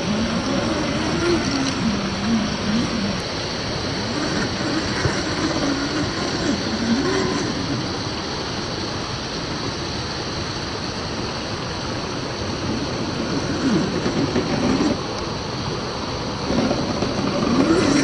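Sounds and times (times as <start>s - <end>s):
electric motor whining: 0.0s - 3.3s, 3.9s - 8.0s, 16.4s - 18.0s
stream rushing: 0.0s - 18.0s.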